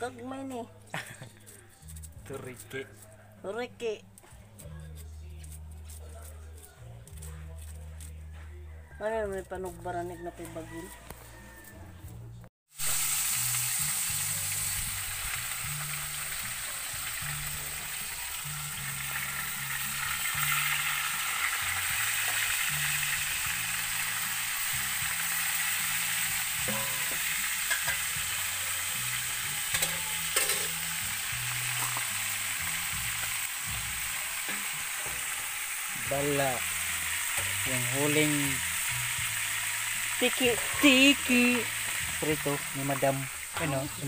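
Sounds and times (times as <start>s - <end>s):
fish sizzling in hot oil: 12.7s - 44.0s.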